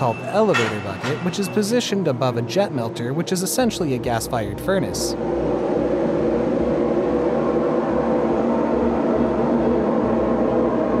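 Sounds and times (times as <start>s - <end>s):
furnace rushing noise: 0.0s - 2.1s
low hum: 0.0s - 11.0s.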